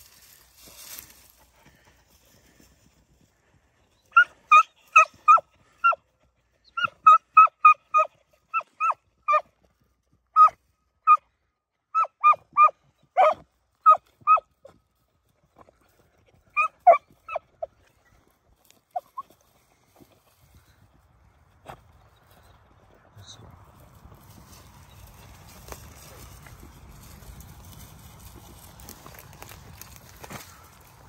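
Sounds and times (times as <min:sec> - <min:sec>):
hounds barking: 0:04.1 - 0:06.0, 0:06.8 - 0:09.5, 0:10.4 - 0:11.2, 0:12.0 - 0:14.5, 0:16.5 - 0:17.6.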